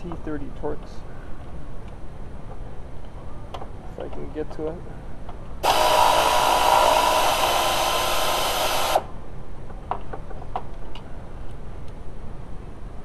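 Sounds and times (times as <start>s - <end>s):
air ratchet running: 5.6s - 9.1s.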